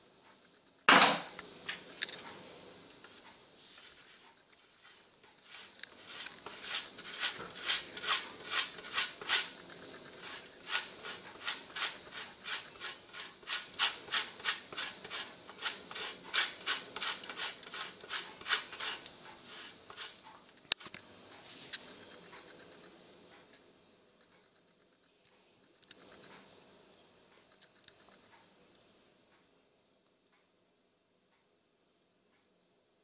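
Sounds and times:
cheese grated on metal grater: 3.7s - 20.2s.

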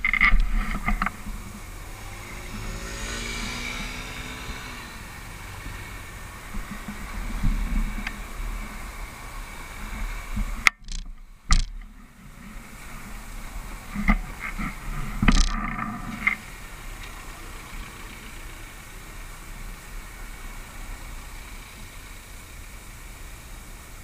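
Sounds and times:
cars driving past: 0.0s - 22.8s
motor scooter pulling away: 1.0s - 8.8s.

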